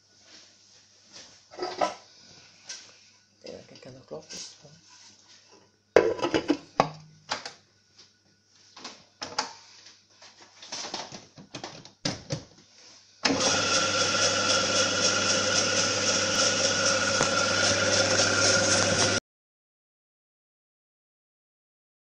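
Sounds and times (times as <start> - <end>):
machine motor humming: 13.3 - 19.2
stone rollers grinding: 13.3 - 19.2.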